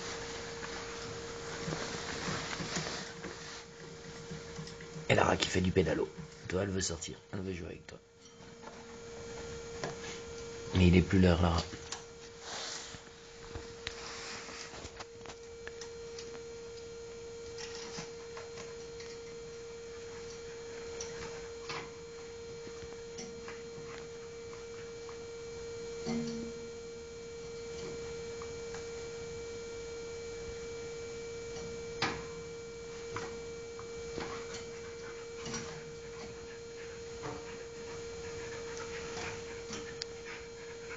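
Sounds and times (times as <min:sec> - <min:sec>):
high-pitched electrical hum: 0:00.0 - 0:40.9.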